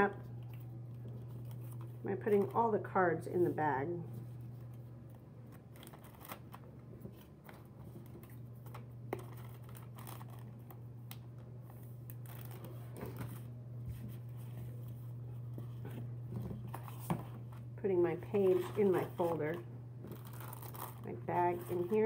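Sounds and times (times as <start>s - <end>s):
steady low hum: 0.0s - 22.0s
plastic bag crinkling: 8.0s - 10.8s, 12.1s - 13.5s, 18.5s - 22.0s.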